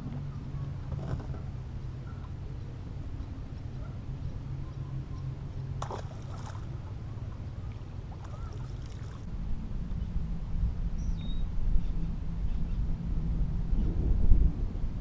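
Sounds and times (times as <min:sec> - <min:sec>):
wind rumbling on microphone: 0:00.0 - 0:15.0
water slapping boat hull: 0:05.7 - 0:09.3.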